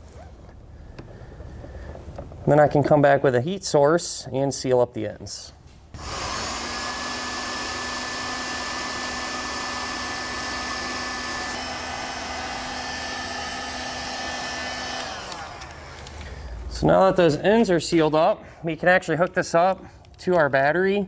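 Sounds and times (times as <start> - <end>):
heat gun fan blowing: 6.0 - 17.4.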